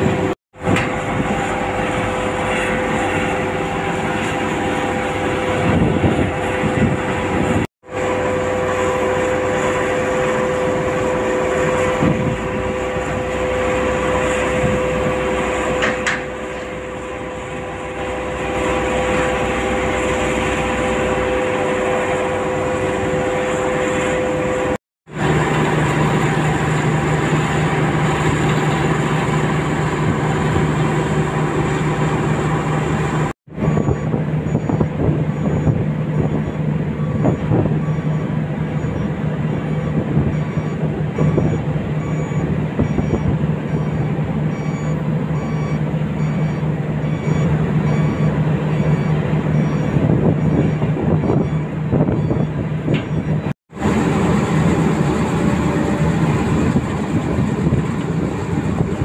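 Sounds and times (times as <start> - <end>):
diesel machinery drone: 0.0 - 59.0
high repeating beep: 33.7 - 53.5.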